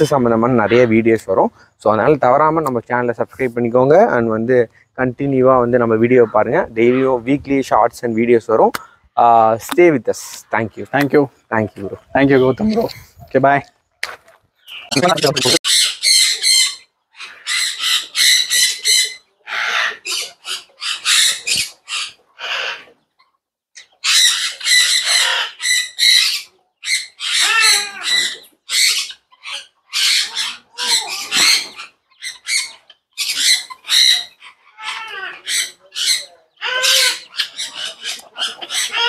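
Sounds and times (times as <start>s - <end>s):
parrots squawking: 0.0s - 1.0s, 14.6s - 23.0s, 23.8s - 39.0s.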